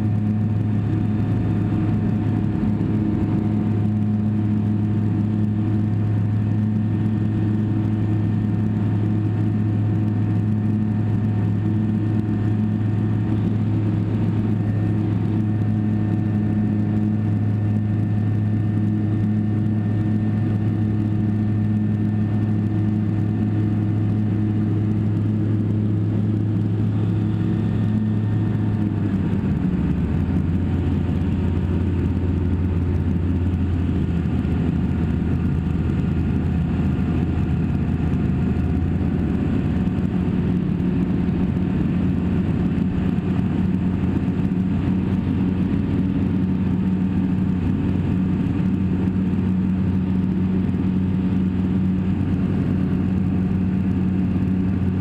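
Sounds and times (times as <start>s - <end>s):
light aircraft engine and propeller: 0.0s - 55.0s.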